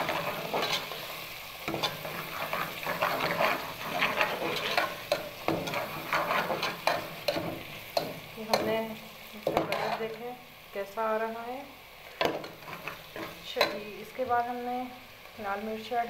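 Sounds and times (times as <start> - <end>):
metal spoon scraping a pot: 0.0 - 8.7, 9.5 - 10.2, 12.2 - 13.8
onions sizzling in hot oil: 0.0 - 16.0.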